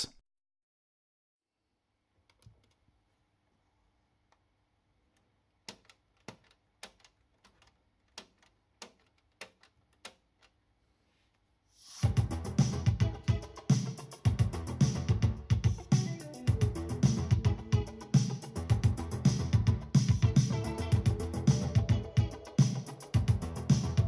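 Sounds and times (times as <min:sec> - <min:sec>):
music with guitar and drums: 0:12.0 - 0:24.0.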